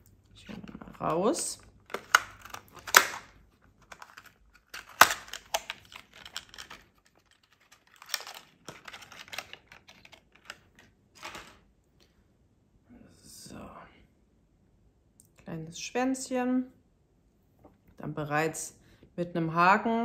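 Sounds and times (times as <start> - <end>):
plastic packaging crinkling: 1.8 - 11.6.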